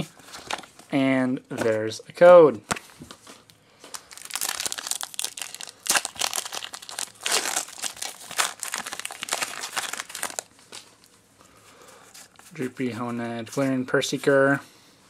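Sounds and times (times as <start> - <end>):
foil wrapper crinkling and tearing: 3.9 - 11.1.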